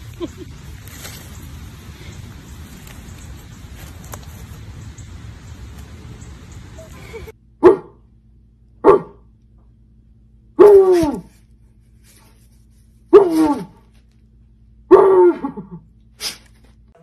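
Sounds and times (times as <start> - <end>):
dog barking: 7.6 - 8.0, 8.8 - 9.2.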